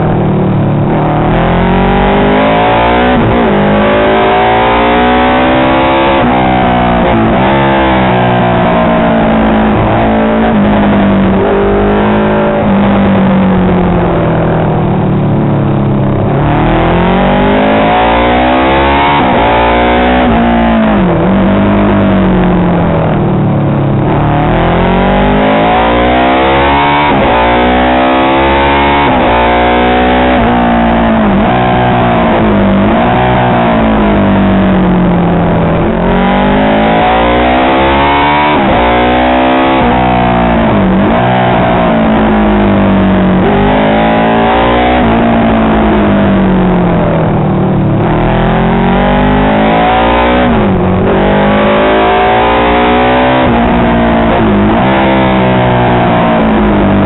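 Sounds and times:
racing motorcycle engine revving: 0.0s - 57.0s.

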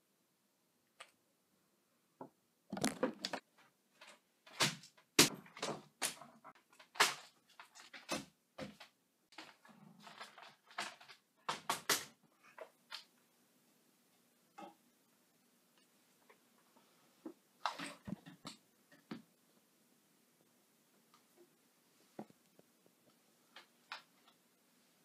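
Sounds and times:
paper rustling and crackling: 2.8s - 13.1s.

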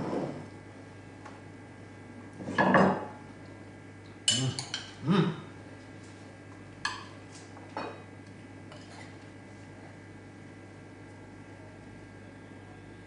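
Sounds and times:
cutlery clinking against dishes: 4.3s - 5.0s.

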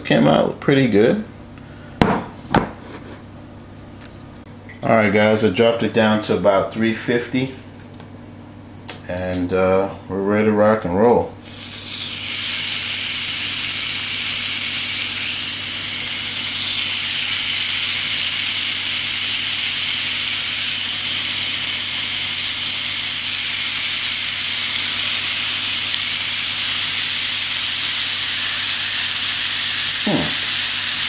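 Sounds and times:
meat patties sizzling on a grill: 11.5s - 31.0s.

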